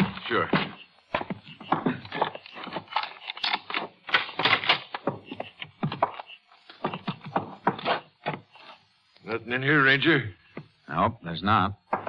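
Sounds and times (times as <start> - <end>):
footsteps on a wooden floor: 0.0 - 3.0, 5.0 - 8.8.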